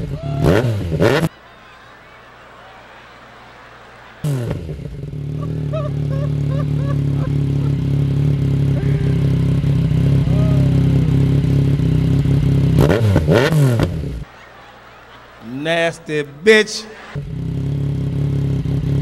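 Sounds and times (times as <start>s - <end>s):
motorcycle engine idling and revving: 0.0s - 1.3s, 4.3s - 14.3s, 17.2s - 19.0s.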